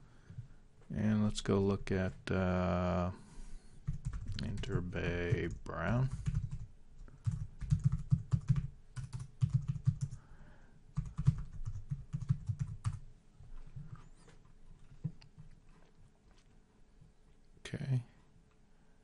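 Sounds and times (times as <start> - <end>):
computer keyboard typing: 3.8 - 10.2, 11.0 - 13.0.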